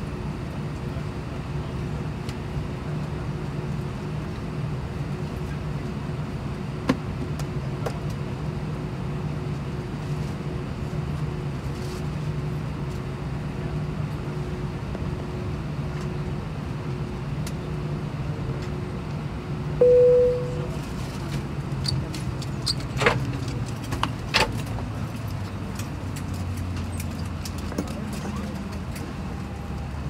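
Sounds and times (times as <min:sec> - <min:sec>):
cabin chime: 0:19.8 - 0:20.6.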